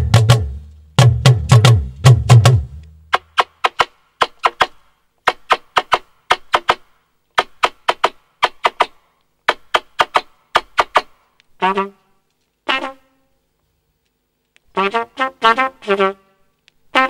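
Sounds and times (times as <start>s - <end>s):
trumpet smacking pops: 2.7s - 11.9s.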